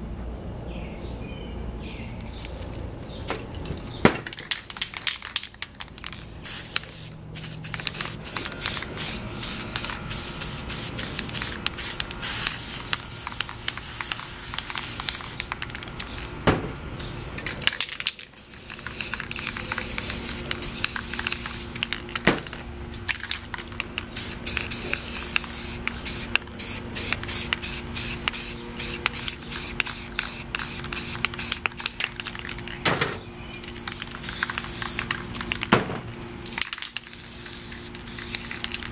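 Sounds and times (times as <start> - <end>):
spray paint can hissing: 4.6 - 16.0, 17.4 - 22.6, 23.2 - 32.5, 33.8 - 35.6, 36.7 - 38.9.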